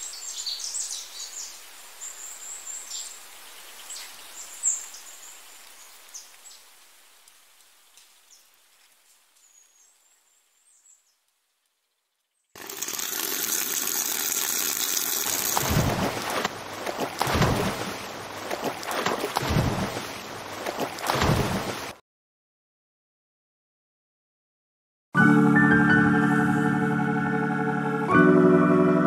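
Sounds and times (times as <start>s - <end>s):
small birds chirping: 0.0s - 6.7s, 7.8s - 12.6s
water pouring into steel basin: 12.6s - 16.5s.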